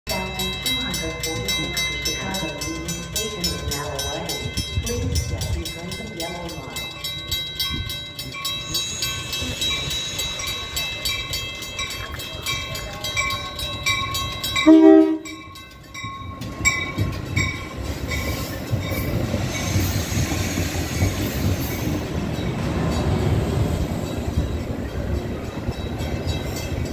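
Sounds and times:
train cars rumbling past: 0.1 - 26.9
train horn blast: 14.6 - 15.4.

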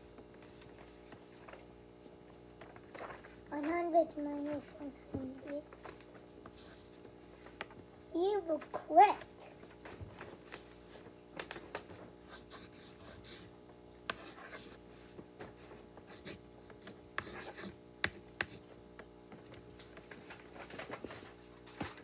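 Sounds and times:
faint steady hum: 0.0 - 22.0
paper rustling and scraping: 9.8 - 12.2, 19.8 - 22.0.

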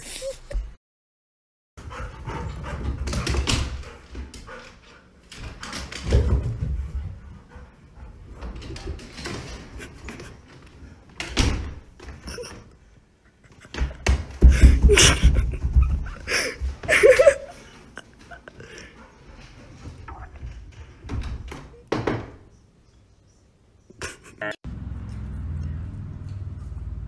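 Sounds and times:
loud thumps on door: 13.7 - 17.2, 21.0 - 22.4.

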